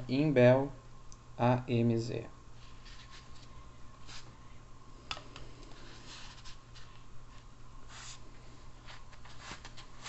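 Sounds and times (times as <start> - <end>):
low electrical hum: 0.0 - 10.0
scratchy handling rustles: 2.6 - 4.3, 8.8 - 10.0.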